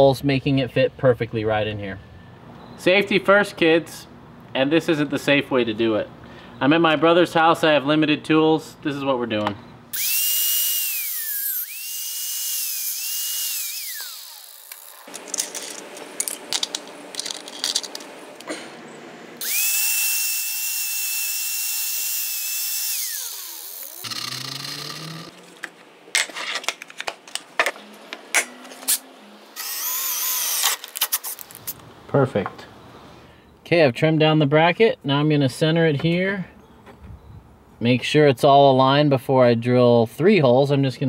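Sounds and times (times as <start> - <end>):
cordless drill boring: 9.9 - 15.2, 19.4 - 25.3, 29.6 - 31.1
angle grinder whining: 9.9 - 18.1, 19.4 - 25.6, 29.6 - 31.5.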